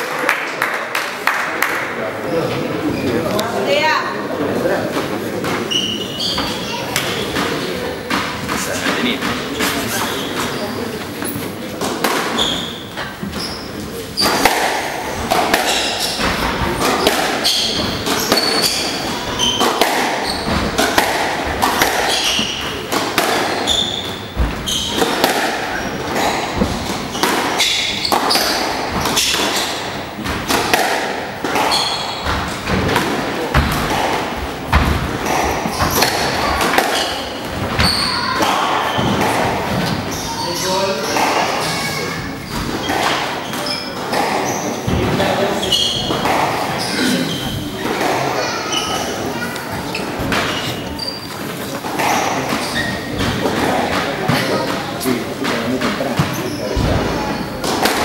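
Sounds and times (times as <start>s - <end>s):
shoes squeaking on wooden floor: 4.7s - 58.0s
squash ball hits: 11.8s - 13.4s, 14.2s - 40.0s, 42.5s - 46.7s, 55.4s - 58.0s.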